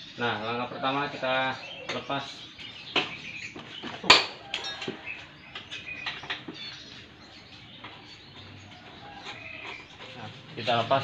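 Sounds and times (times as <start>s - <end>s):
birds chirping: 0.0s - 11.0s.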